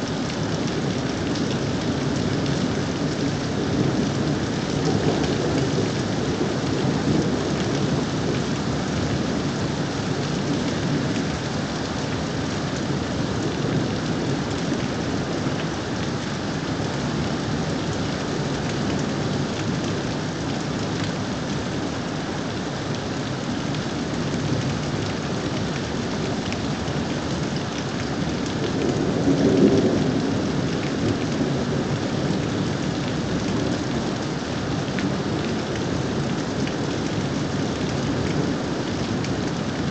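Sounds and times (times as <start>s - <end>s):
steady rain: 0.0s - 39.9s
low rumble of thunder: 28.1s - 39.9s.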